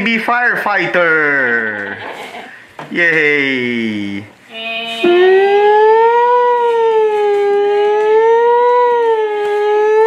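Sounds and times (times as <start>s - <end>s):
electronic toy siren wailing: 5.0s - 10.0s.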